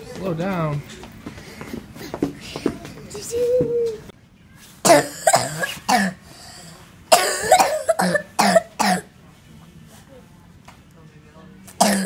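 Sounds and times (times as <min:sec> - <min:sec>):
child coughing: 0:04.8 - 0:06.2, 0:07.1 - 0:09.1, 0:11.8 - 0:12.0.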